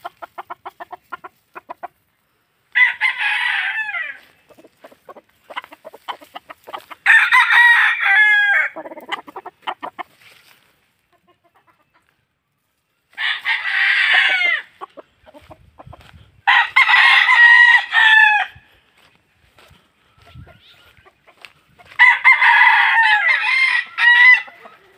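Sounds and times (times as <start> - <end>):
rooster crowing: 2.7 - 4.3, 7.0 - 8.8, 13.1 - 14.8, 16.4 - 18.7, 21.8 - 24.9.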